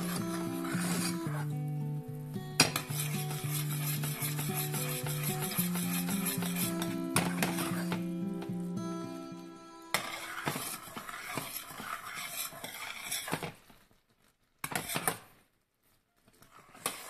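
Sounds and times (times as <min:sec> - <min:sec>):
metal spoon scraping saucepan: 0:00.0 - 0:01.6, 0:02.6 - 0:08.4, 0:09.9 - 0:13.5, 0:14.7 - 0:15.2, 0:16.4 - 0:17.0
background music: 0:00.0 - 0:10.4.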